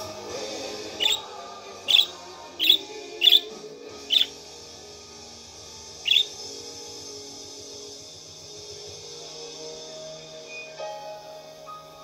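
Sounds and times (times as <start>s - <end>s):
background music: 0.0s - 12.0s
budgerigar chirping: 1.0s - 4.4s, 6.0s - 6.4s.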